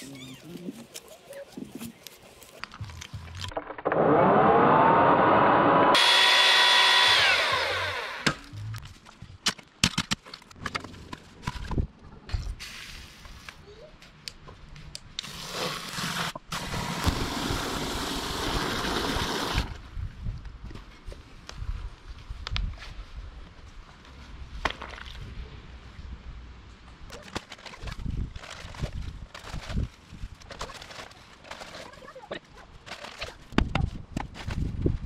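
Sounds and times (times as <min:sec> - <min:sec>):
earth auger engine revving: 0:03.7 - 0:08.4.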